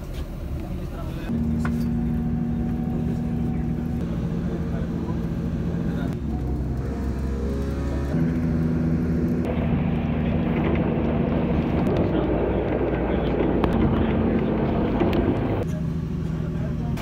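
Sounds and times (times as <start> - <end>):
engine drone: 0.0 - 17.0.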